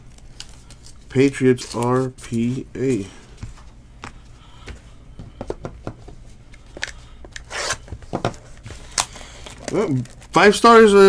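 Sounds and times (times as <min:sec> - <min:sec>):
shrink-wrapped box rustling: 0:07.4 - 0:11.0.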